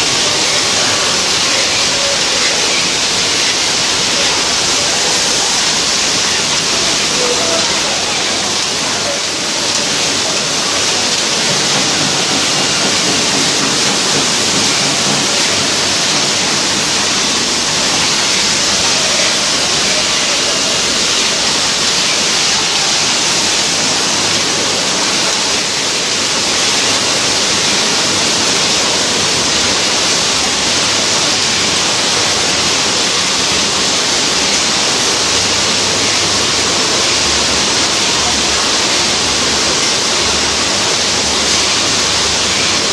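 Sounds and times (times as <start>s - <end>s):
production line rushing hiss: 0.0s - 42.9s.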